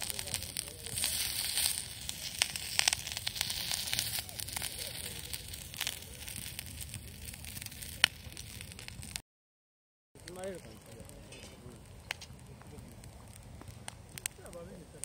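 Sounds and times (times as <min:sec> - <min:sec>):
crackling pops: 0:00.0 - 0:09.2, 0:10.2 - 0:15.0
mushrooms sizzling in oil: 0:00.0 - 0:09.2.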